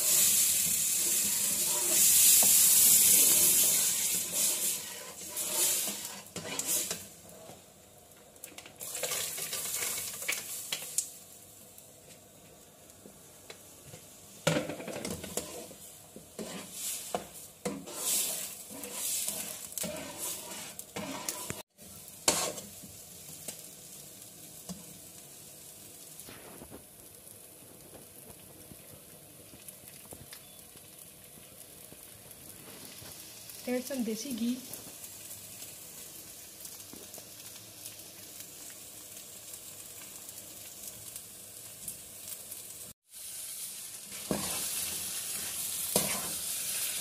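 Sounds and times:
metal spatula scraping a pan: 0:00.0 - 0:07.1, 0:14.5 - 0:21.6, 0:22.2 - 0:22.8, 0:44.1 - 0:47.0
semolina sizzling: 0:00.0 - 0:47.0.

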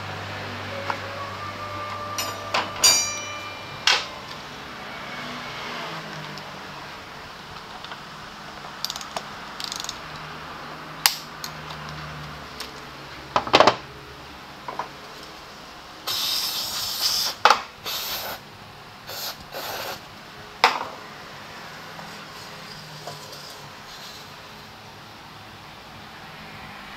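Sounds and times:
tools clinking on metal pan: 0:02.2 - 0:04.1
aerosol spray can hissing: 0:16.1 - 0:18.4, 0:19.1 - 0:20.0.

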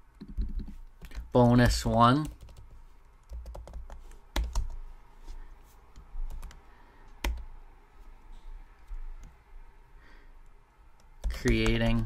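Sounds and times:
computer keyboard keystrokes: 0:00.2 - 0:04.8, 0:06.3 - 0:06.6, 0:07.2 - 0:07.5, 0:11.0 - 0:12.0.

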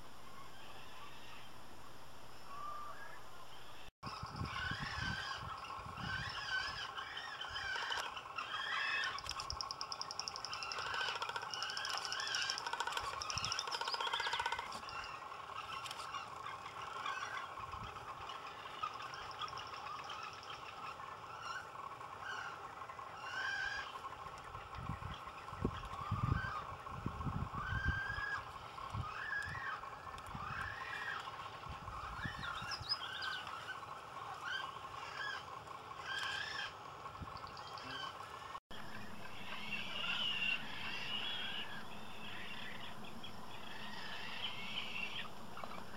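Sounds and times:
high bird chirps: 0:02.5 - 0:15.2, 0:32.0 - 0:35.4
frigatebirds warbling chatter: 0:03.8 - 0:45.9
frigatebird rattling drum calls: 0:04.1 - 0:45.9.

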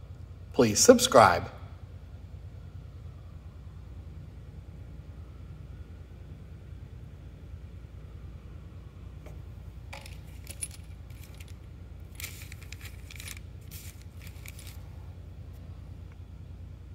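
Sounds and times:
steady low hum: 0:00.0 - 0:16.9
light metal clinks: 0:09.3 - 0:11.6
plastic bag crinkling: 0:10.0 - 0:14.9.

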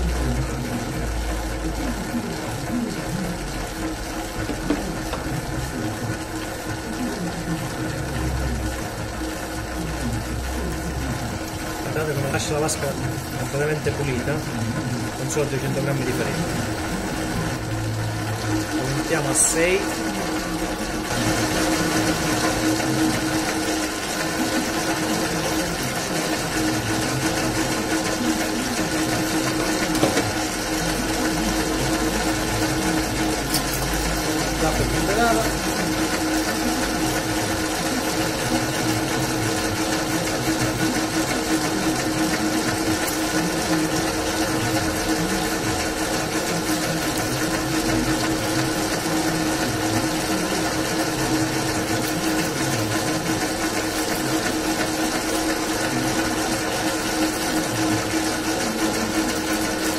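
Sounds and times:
dough mixer motor humming: 0:00.0 - 0:59.9.

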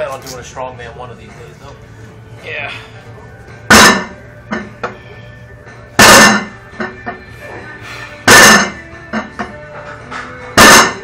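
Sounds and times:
weight bar clanking down: 0:03.7 - 0:04.2, 0:06.0 - 0:06.5, 0:08.3 - 0:08.8, 0:10.6 - 0:11.0.

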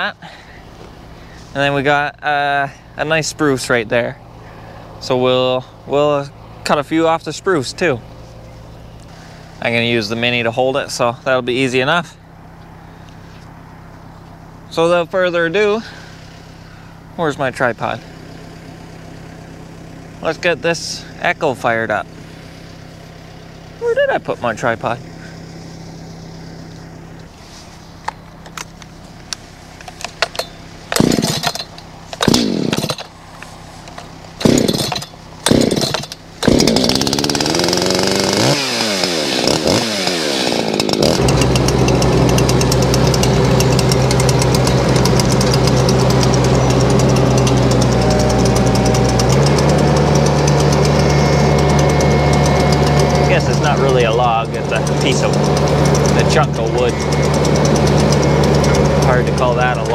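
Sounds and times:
chainsaw starting and running: 0:24.5 - 0:27.3, 0:29.9 - 0:59.9
starter cord pulled: 0:28.0 - 0:59.9.

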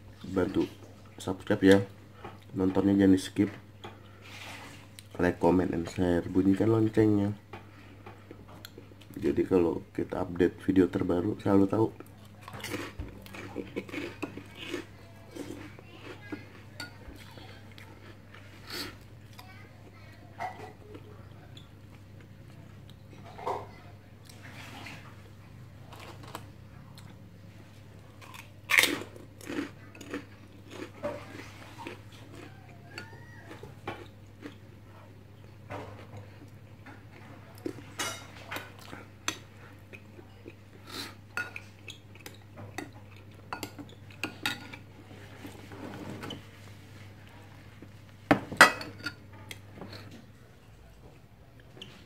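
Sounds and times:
chewing: 0:12.0 - 0:19.6, 0:28.0 - 0:35.1.

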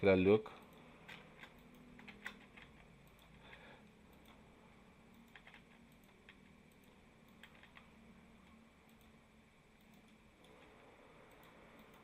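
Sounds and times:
computer keyboard and mouse clicks: 0:00.6 - 0:04.5, 0:05.1 - 0:09.2, 0:09.8 - 0:12.0.

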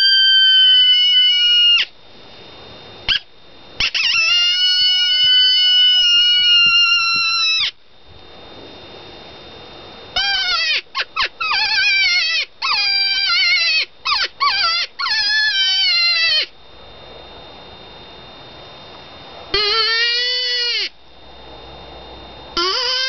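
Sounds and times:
predator call squalling cries: 0:00.0 - 0:01.9, 0:03.1 - 0:07.8, 0:10.2 - 0:16.5, 0:19.5 - 0:21.0, 0:22.6 - 0:23.0.

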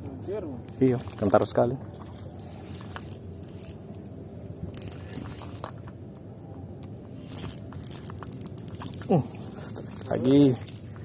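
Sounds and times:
fishing reel gears whirring: 0:00.7 - 0:04.0, 0:04.6 - 0:06.3, 0:07.2 - 0:11.0.

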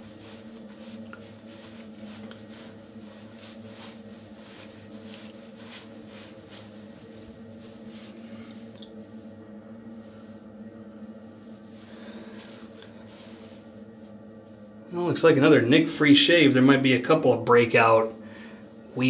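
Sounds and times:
towel rubbing skin: 0:00.0 - 0:14.7
steady low hum: 0:00.0 - 0:19.0.

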